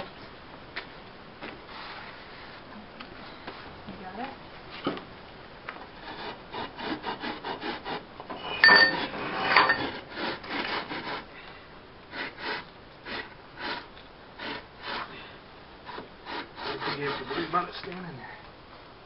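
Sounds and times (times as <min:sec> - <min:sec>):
bricks scraping together: 0:08.3 - 0:10.9.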